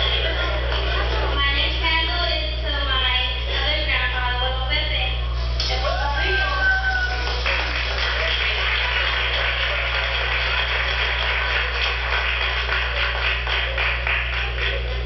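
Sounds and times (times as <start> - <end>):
crowd applauding: 0.0 - 1.7, 5.6 - 15.0
low electrical hum: 0.0 - 15.0.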